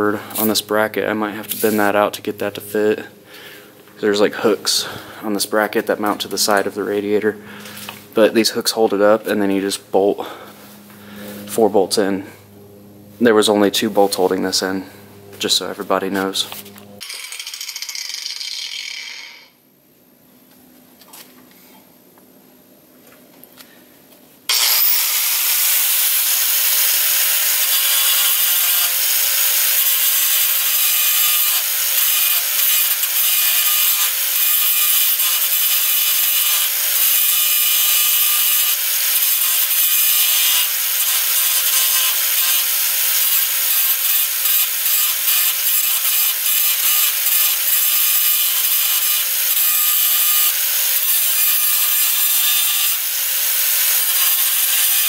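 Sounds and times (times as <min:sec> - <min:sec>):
angle grinder grinding metal: 0:13.2 - 0:19.6, 0:24.5 - 0:55.0.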